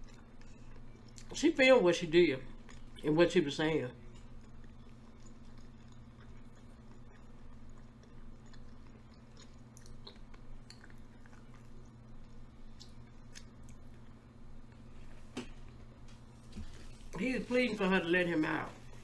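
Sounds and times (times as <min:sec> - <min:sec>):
person chewing food: 0:00.0 - 0:01.4, 0:02.5 - 0:03.0, 0:04.0 - 0:17.2
low steady hum: 0:00.0 - 0:19.0.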